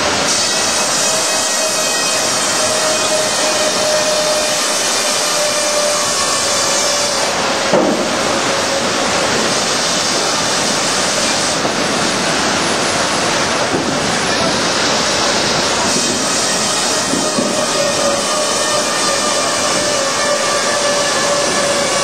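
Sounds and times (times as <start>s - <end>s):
sawmill machinery din: 0.0s - 22.0s
machine whine: 10.1s - 22.0s.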